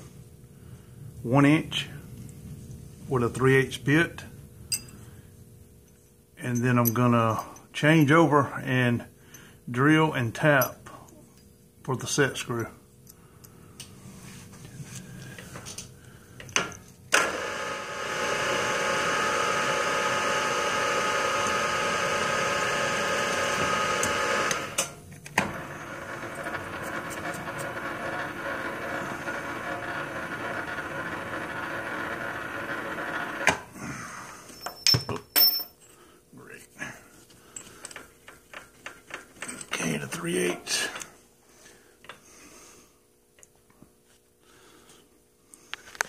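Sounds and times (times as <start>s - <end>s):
milling machine spindle whine: 17.2s - 24.8s, 25.4s - 33.5s.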